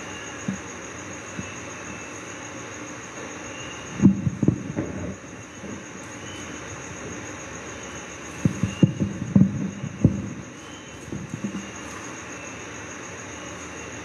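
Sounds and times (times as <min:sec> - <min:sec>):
steady background hiss: 0:00.0 - 0:14.0
dull low knocks and thuds: 0:04.0 - 0:05.8, 0:08.4 - 0:11.7.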